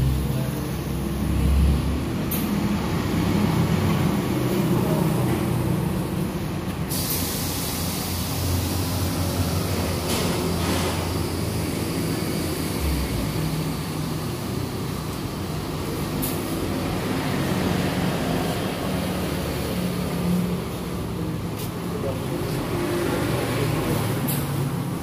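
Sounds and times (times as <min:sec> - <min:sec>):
short air hisses: 0:06.9 - 0:09.5.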